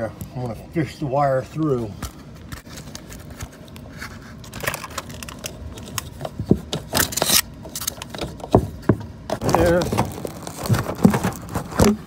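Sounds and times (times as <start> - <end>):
wire scraping and rustling: 9.3 - 12.0.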